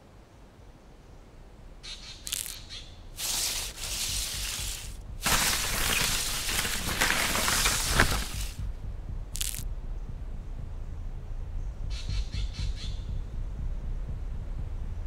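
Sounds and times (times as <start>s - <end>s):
footsteps running through dry leaves: 2.3s - 2.6s, 3.2s - 8.6s, 9.4s - 9.6s.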